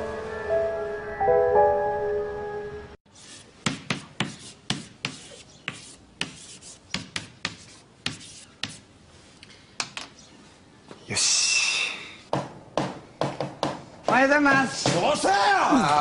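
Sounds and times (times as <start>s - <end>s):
chalk tapping and scraping on blackboard: 3.1s - 8.9s.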